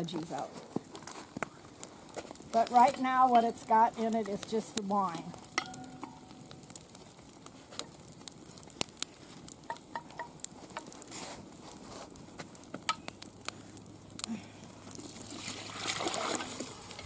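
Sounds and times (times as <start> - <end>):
fire popping: 0.0 - 17.0
wood fire crackling: 0.0 - 17.0
broth pouring and splashing: 13.2 - 17.0.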